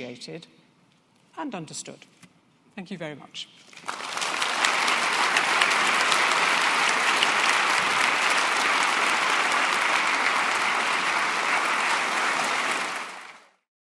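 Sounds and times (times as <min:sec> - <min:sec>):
audience applauding: 0:03.8 - 0:13.6.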